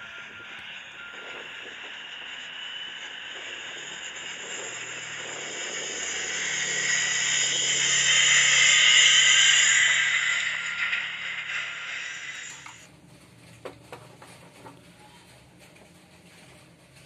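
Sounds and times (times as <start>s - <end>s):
wheel loader engine whining: 0.0s - 12.9s.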